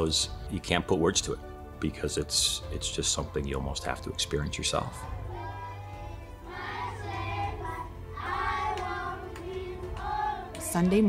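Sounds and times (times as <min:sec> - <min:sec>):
children singing: 0:04.7 - 0:10.7.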